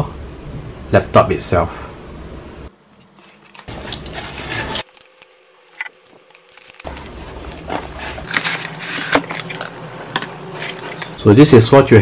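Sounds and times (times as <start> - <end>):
cardboard rustling and scraping: 2.9 - 11.2.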